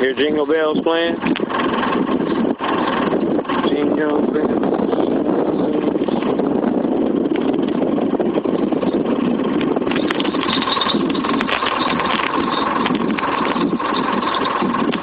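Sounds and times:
outboard motor idling: 0:00.0 - 0:15.0
fishing reel cranking: 0:09.9 - 0:15.0.

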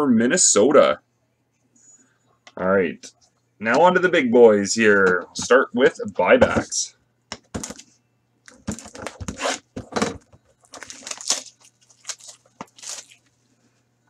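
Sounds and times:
faint steady hum: 0:00.0 - 0:14.0
packaging crinkling and tearing: 0:10.6 - 0:13.3.

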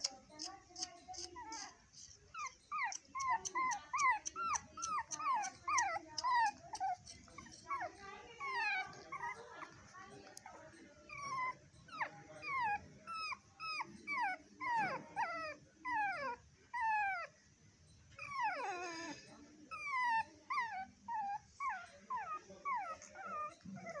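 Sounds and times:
puppy whimpering: 0:00.0 - 0:17.4, 0:18.1 - 0:24.0.

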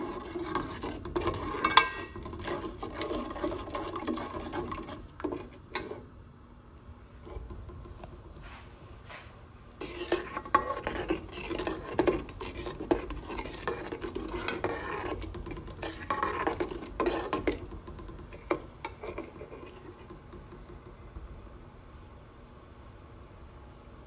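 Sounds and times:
spoon scraping metal pot: 0:00.0 - 0:06.0, 0:09.8 - 0:20.4.

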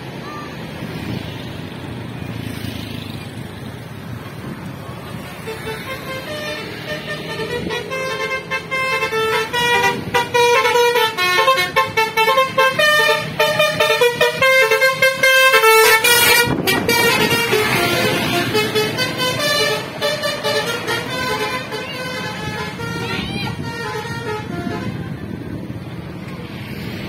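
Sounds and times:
multi-tone bus horn tune: 0:05.2 - 0:25.4.

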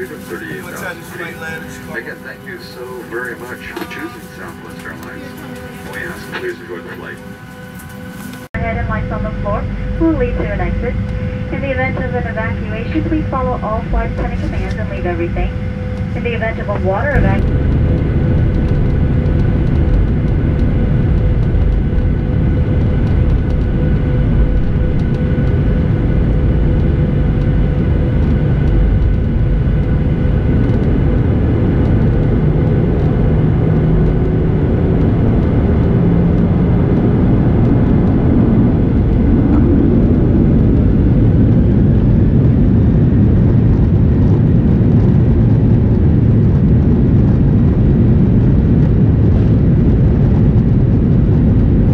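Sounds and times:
aircraft cabin engine rumble: 0:00.0 - 0:51.9
faint engine whine: 0:00.0 - 0:51.9.

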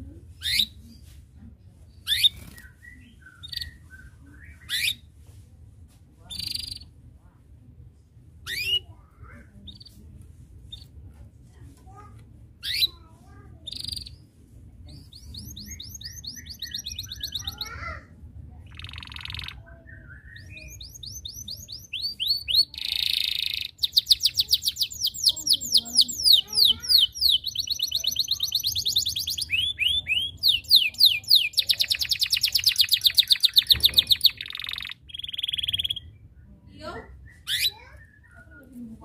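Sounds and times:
canary singing trills: 0:00.4 - 0:00.8, 0:02.0 - 0:05.0, 0:06.3 - 0:06.9, 0:08.4 - 0:10.0, 0:12.6 - 0:14.3, 0:14.9 - 0:18.0, 0:18.6 - 0:39.0.

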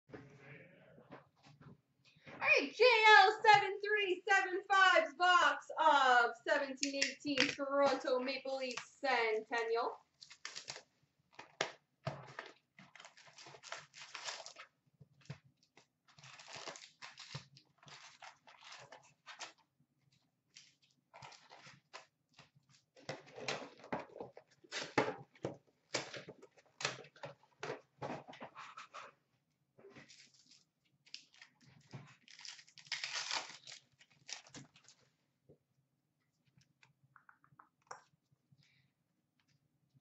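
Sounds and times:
wrappers tearing and crinkling: 0:10.2 - 0:10.9, 0:12.3 - 0:14.7, 0:16.1 - 0:19.5, 0:30.1 - 0:35.0.

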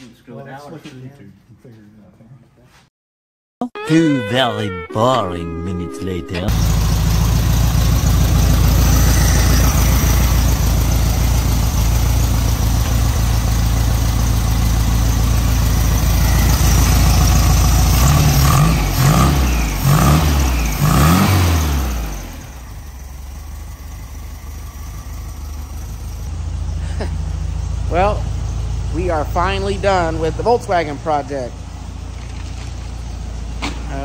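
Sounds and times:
engine revving: 0:06.5 - 0:23.0
car engine running: 0:06.5 - 0:33.6.

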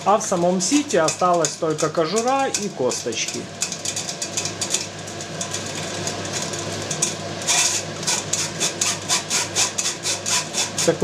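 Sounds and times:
spoon scraping through metal sieve: 0:06.4 - 0:11.0.

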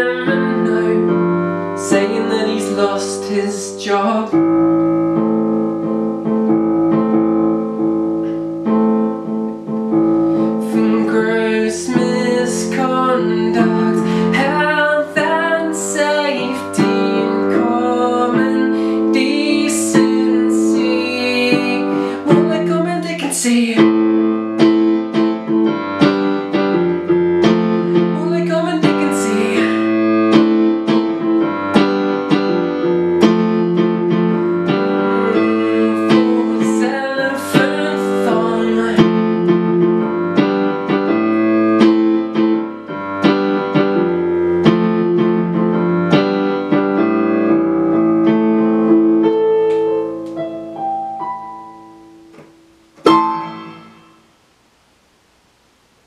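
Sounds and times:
man singing: 0:00.0 - 0:04.5, 0:10.6 - 0:24.2, 0:27.9 - 0:30.2, 0:34.6 - 0:39.7
electric keyboard piano chords: 0:00.0 - 0:54.5.

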